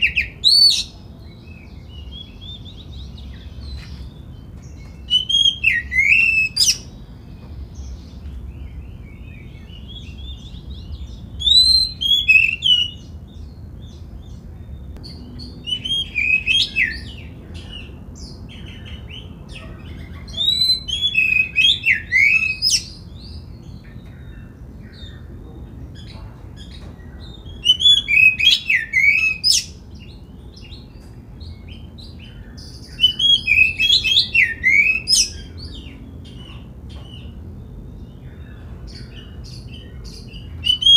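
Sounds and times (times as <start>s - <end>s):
bird singing whistled phrases: 5.0s - 6.9s, 11.4s - 13.1s, 15.0s - 17.9s, 20.3s - 23.0s, 27.4s - 29.8s, 32.8s - 35.9s, 39.8s - 40.9s.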